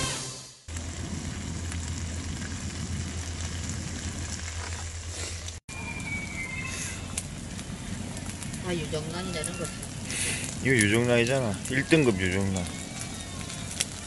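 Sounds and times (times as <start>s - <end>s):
low hum: 0.7s - 10.6s
food sizzling on griddle: 5.8s - 14.0s.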